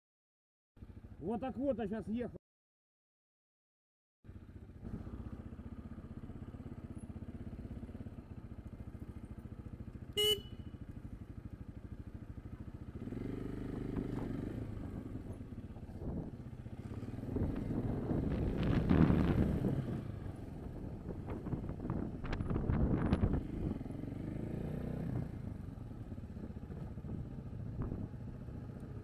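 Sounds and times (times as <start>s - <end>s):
motorcycle engine running: 0.8s - 2.3s, 4.2s - 29.0s
vehicle horn beep: 10.1s - 10.8s
wind noise: 14.0s - 23.9s.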